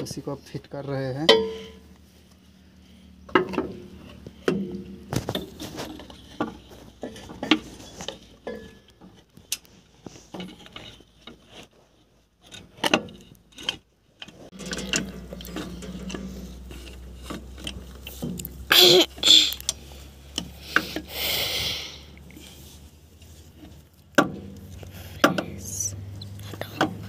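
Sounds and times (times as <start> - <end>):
metal clinks and scrapes: 3.7 - 21.0
steady low hum: 14.5 - 23.8.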